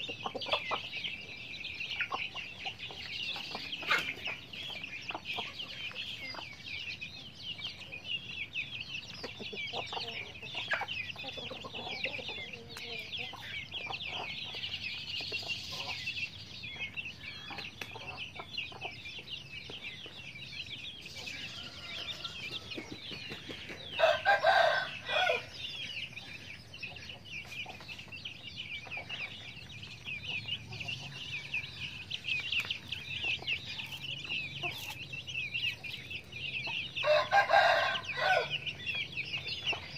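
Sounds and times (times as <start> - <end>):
chicks peeping: 0.0 - 39.9
hens clucking: 0.0 - 39.9
loud chicken call: 24.0 - 25.5, 37.0 - 38.6.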